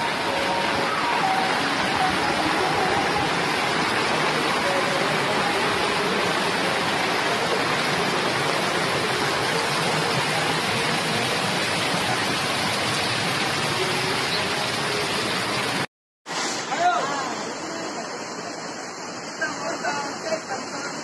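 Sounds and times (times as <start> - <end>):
floodwater rushing over rocks: 0.0 - 21.0.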